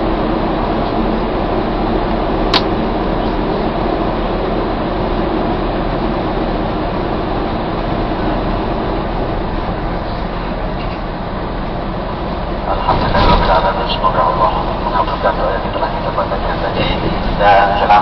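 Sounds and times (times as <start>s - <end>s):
coach bus running noise: 0.0s - 18.0s
sharp click: 2.5s - 2.7s.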